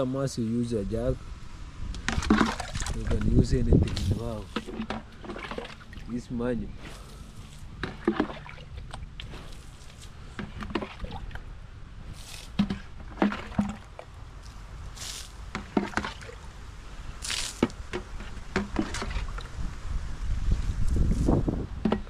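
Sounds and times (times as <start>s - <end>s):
water splashes and drips: 1.9s - 11.6s, 12.2s - 19.8s
container knocks and clatters: 2.0s - 3.3s, 12.5s - 14.0s.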